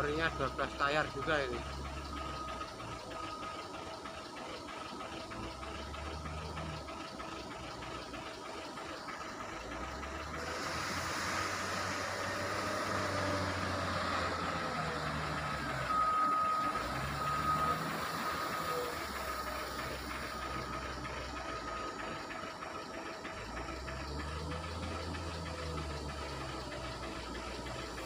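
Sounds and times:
wheel loader diesel engine running: 0:00.0 - 0:28.0.

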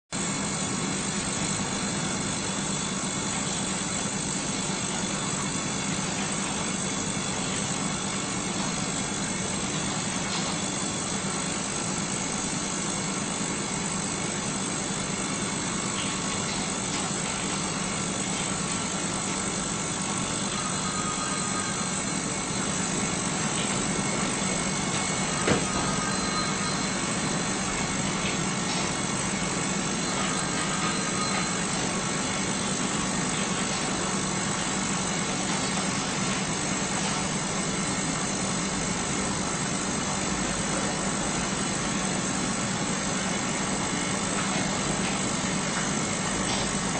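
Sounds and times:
ultrasonic cleaner humming: 0:00.1 - 0:46.9.

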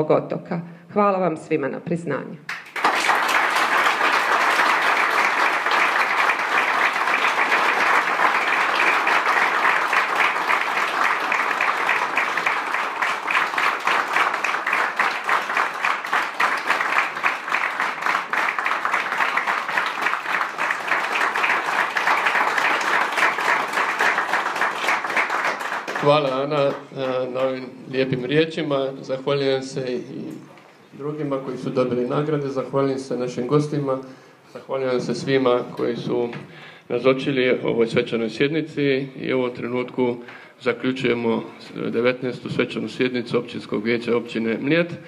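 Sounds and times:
crowd applauding: 0:02.5 - 0:27.7.

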